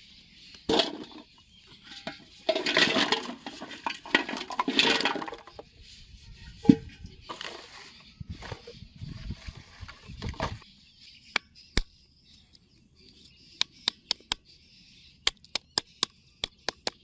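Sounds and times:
plastic bottles clattering: 0.6s - 5.8s
metal pot clanking: 0.7s - 5.5s.

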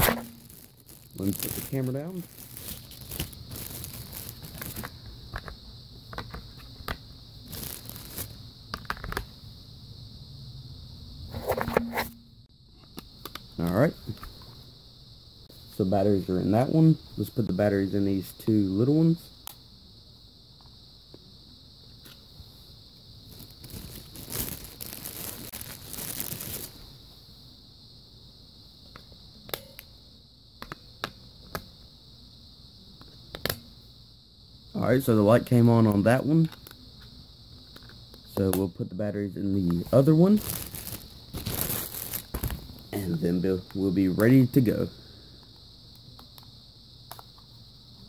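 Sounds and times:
packaging crinkling: 0.0s - 5.0s, 7.5s - 8.3s, 23.3s - 26.7s, 39.8s - 42.8s
plastic clicks and knocks: 5.3s - 7.0s
handling rustling: 39.8s - 42.8s.

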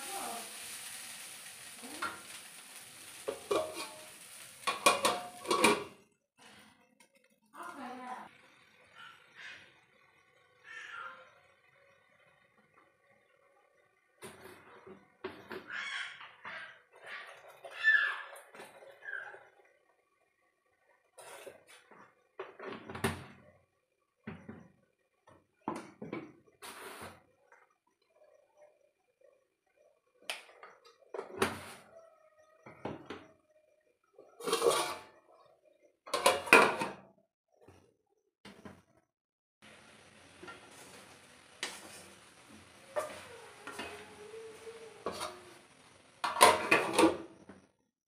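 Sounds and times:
metal plate clattering on pan: 3.2s - 6.0s, 34.4s - 35.1s, 36.1s - 37.0s, 46.2s - 47.3s
objects knocking and scraping: 3.2s - 6.6s, 34.4s - 35.2s, 36.1s - 37.8s, 40.4s - 45.6s, 46.2s - 47.7s
wooden spatula scraping metal pan: 3.3s - 4.1s, 34.4s - 35.1s, 45.0s - 45.6s.

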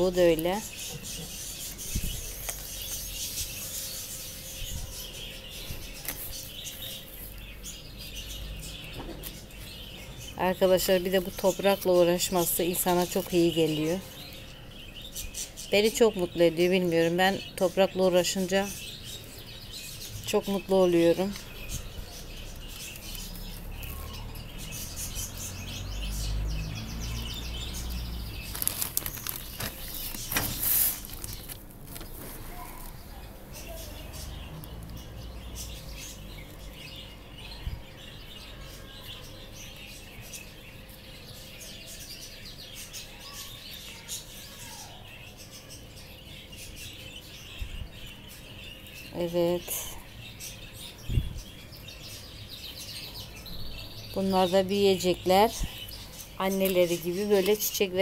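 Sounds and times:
small birds chirping: 0.0s - 58.0s
plastic bag crinkling: 28.3s - 33.0s
soft handling sounds: 28.5s - 33.0s.

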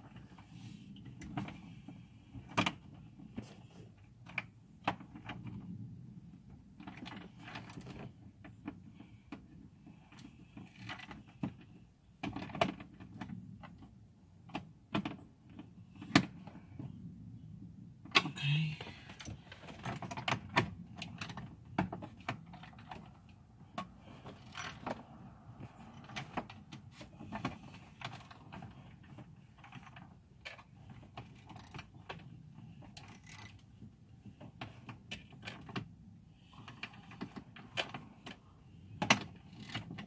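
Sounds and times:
tools and plastic parts clicking: 25.8s - 33.7s.

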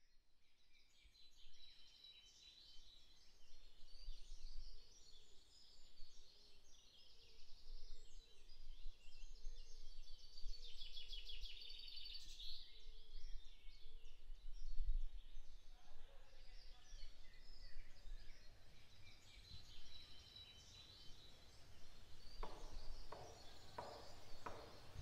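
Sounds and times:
songbirds singing: 0.0s - 25.0s.

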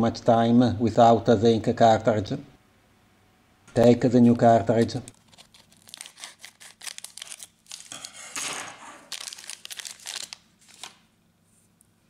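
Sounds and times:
scissors cutting plastic bag: 5.1s - 10.9s
plastic bag crinkling: 5.1s - 11.1s.

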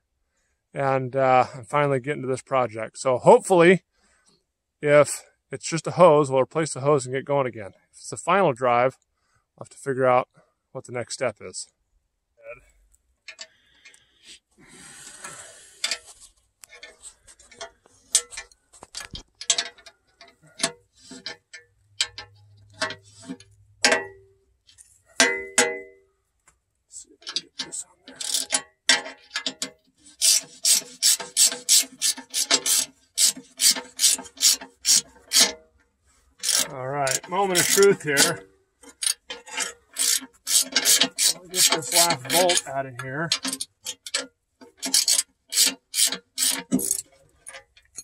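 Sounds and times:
ratchet wrench clicking: 28.1s - 35.5s, 36.4s - 42.7s, 44.8s - 48.0s.

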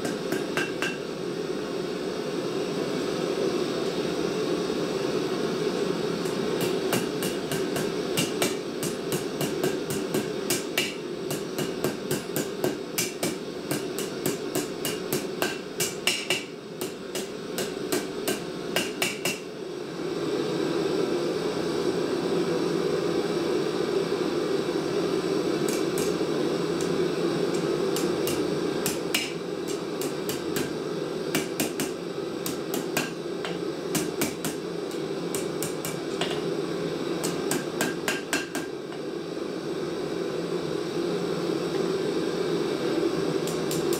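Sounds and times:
hammer striking steel on anvil: 0.0s - 1.1s, 6.2s - 19.5s, 25.7s - 26.2s, 27.5s - 36.5s, 37.2s - 38.7s.

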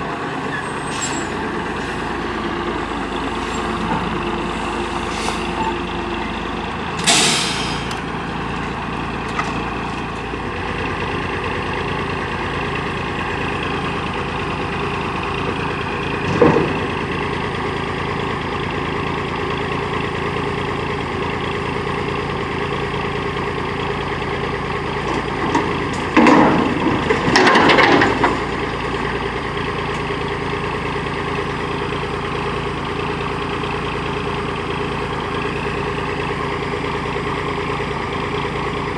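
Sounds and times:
garbage truck diesel engine running: 0.0s - 38.9s
short sharp air hiss: 7.0s - 7.9s
metal banging and rattling: 25.4s - 28.5s.

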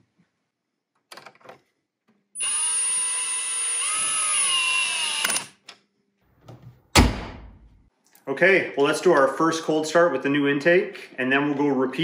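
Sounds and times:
power tool whirring: 2.4s - 5.6s.

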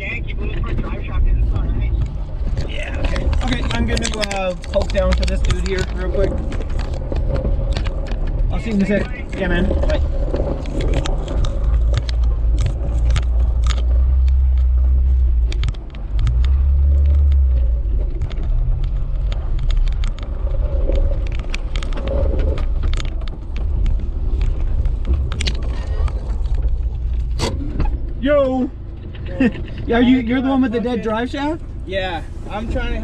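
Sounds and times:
engine and drivetrain rumble: 0.0s - 33.0s
knocks and rattles: 1.9s - 28.2s.

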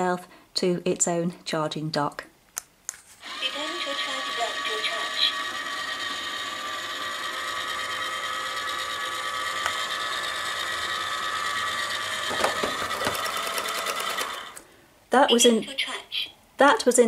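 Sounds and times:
robot vacuum motor whine: 3.2s - 14.6s.

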